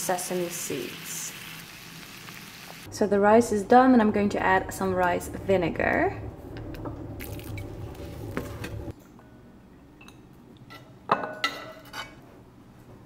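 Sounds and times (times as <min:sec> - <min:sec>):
low hum: 0:02.9 - 0:10.0.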